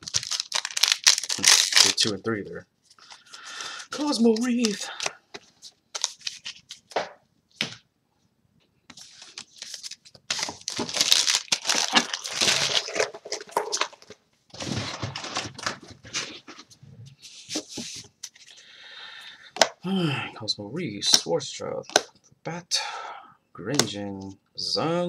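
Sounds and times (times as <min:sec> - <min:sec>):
foil wrappers crinkling: 0:00.0 - 0:02.2, 0:09.0 - 0:16.4.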